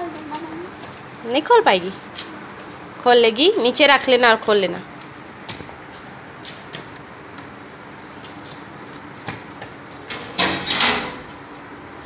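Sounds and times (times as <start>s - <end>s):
metal gate rattling scrape: 9.0s - 11.6s.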